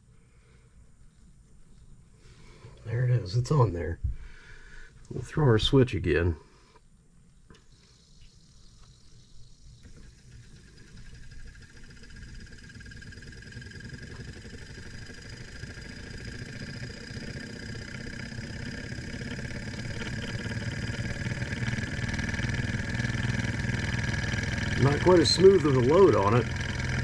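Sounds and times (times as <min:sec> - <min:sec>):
electric motor whirring: 0:07.6 - 0:27.0.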